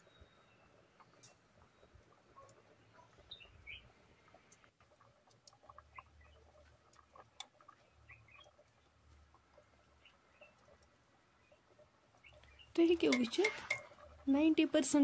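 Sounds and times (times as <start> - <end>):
faint bird chirps: 0.0 - 4.4, 7.2 - 9.0, 9.6 - 13.9.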